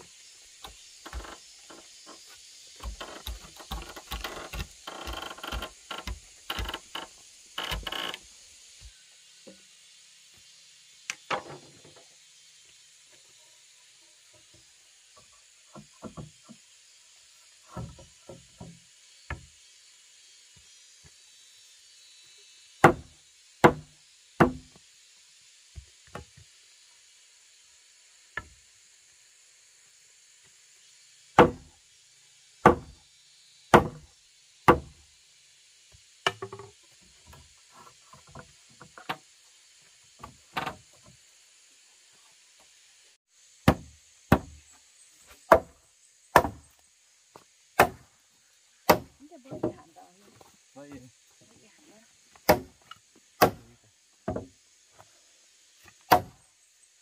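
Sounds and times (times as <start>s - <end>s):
knocks of wood being handled: 0.6s - 8.2s, 15.2s - 16.6s, 17.6s - 19.5s, 36.2s - 39.3s, 48.9s - 50.5s, 54.2s - 54.6s.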